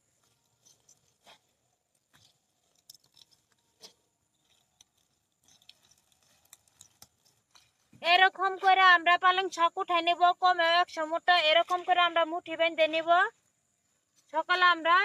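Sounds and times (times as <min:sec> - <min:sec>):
plants being pulled from soil: 0:00.0 - 0:08.9
stems snapping: 0:00.2 - 0:07.9.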